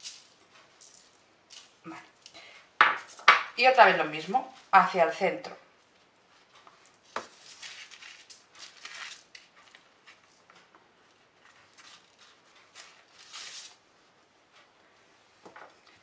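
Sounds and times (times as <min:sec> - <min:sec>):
paper rustling and crinkling: 0:07.1 - 0:10.4, 0:11.4 - 0:13.8.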